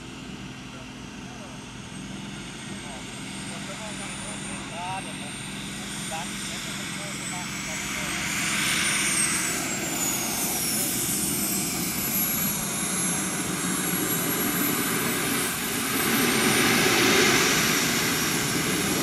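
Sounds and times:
exhaust rushing: 3.5s - 19.0s
high turbine whistle: 7.2s - 19.0s.

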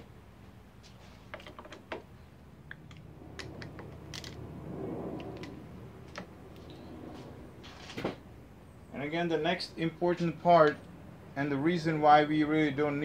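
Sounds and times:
rustling scrape: 6.7s - 8.2s.

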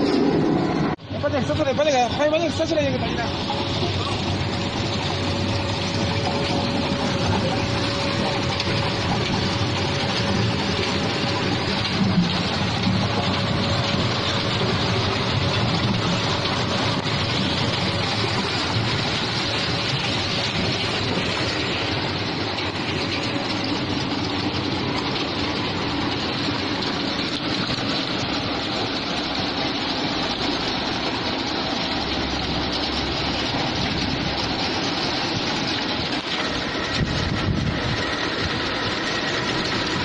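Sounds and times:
processing line machinery running: 0.0s - 40.0s.

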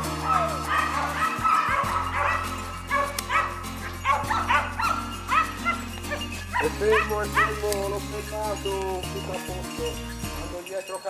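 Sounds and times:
hounds yelping and baying: 0.0s - 8.4s
background music with held chords: 0.0s - 10.6s.

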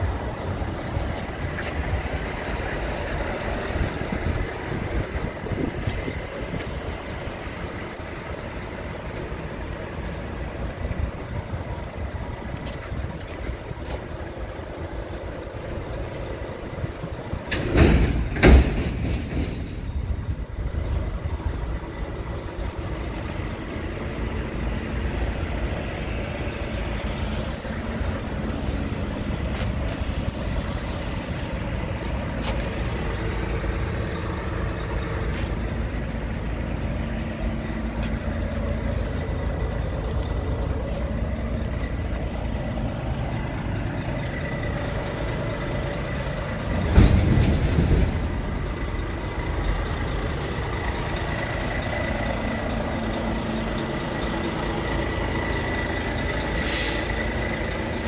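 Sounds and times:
diesel truck engine idling: 0.0s - 58.0s.

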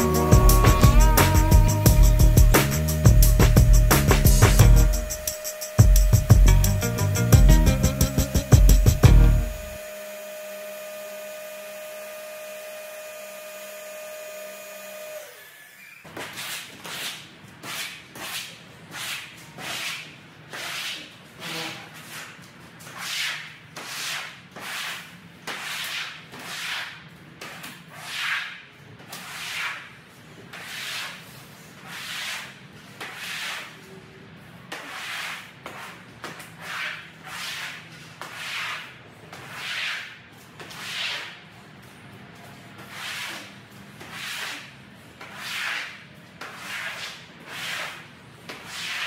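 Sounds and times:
squeegee swishing water on concrete: 34.7s - 49.0s.

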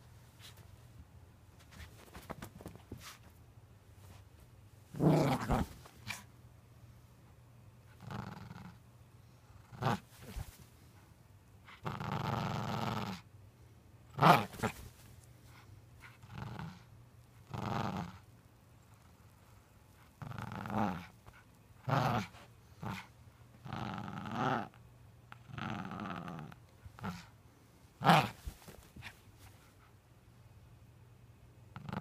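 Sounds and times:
small dog growling in play: 4.9s - 6.3s, 7.9s - 8.8s, 9.5s - 10.6s, 11.7s - 13.3s, 14.1s - 15.0s, 16.0s - 18.3s, 20.0s - 27.4s, 28.0s - 29.6s, 31.7s - 32.0s.

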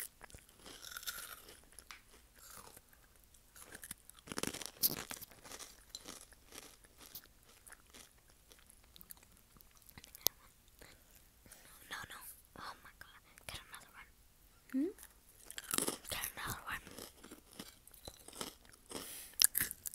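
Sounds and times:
chewing crunchy snack: 0.0s - 11.2s, 15.4s - 19.9s.

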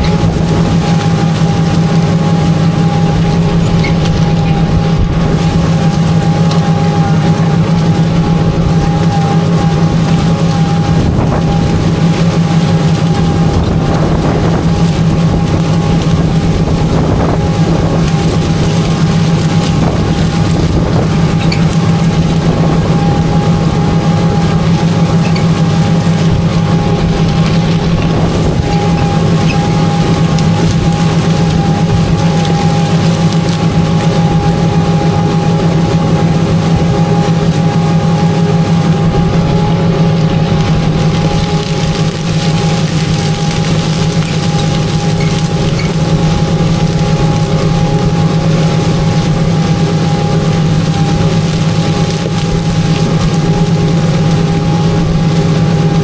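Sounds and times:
thin steady whine: 0.0s - 56.0s
tractor engine under load: 0.0s - 56.0s.

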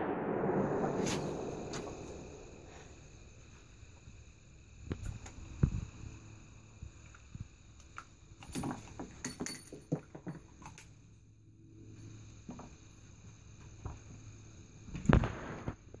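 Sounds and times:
brass cases clinking: 8.4s - 11.0s.

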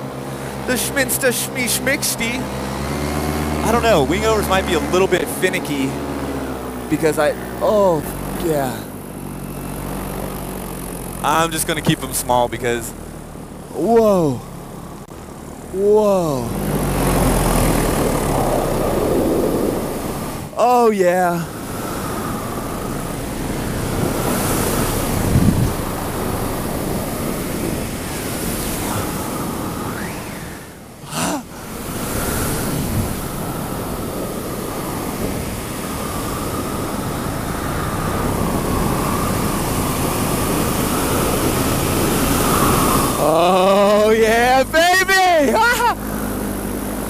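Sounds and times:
paramotor engine and propeller: 0.0s - 47.0s
wind rushing over microphone: 16.4s - 20.6s, 21.3s - 44.8s.

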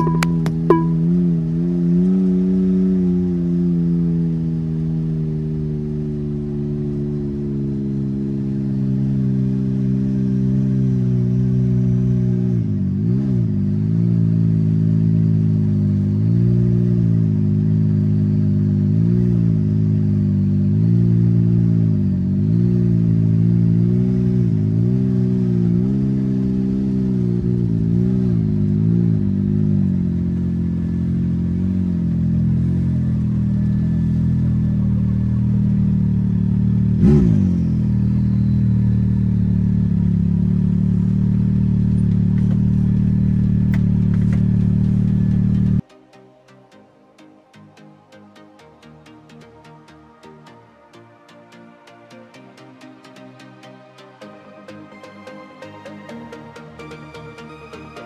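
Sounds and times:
off-road vehicle engine revving: 0.0s - 45.8s.

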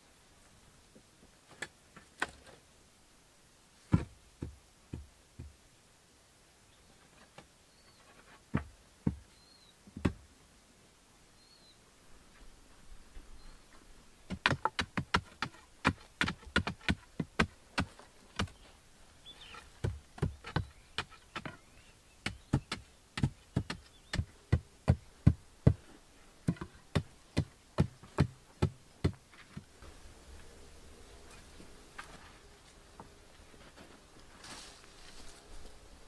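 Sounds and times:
wooden poles knocking into earth: 3.9s - 5.5s, 14.3s - 18.6s, 19.4s - 21.6s, 22.2s - 25.8s, 26.5s - 29.7s.

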